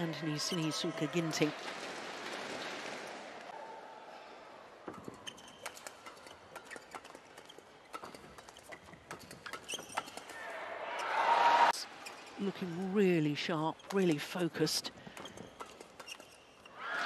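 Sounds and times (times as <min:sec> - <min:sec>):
shoes squeaking on court: 0:04.9 - 0:10.4, 0:12.0 - 0:12.6, 0:15.1 - 0:16.8.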